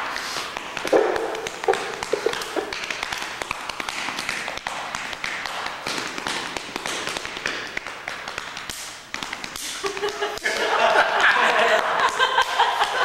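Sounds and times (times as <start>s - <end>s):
hand slaps on chest: 0.5s - 10.7s.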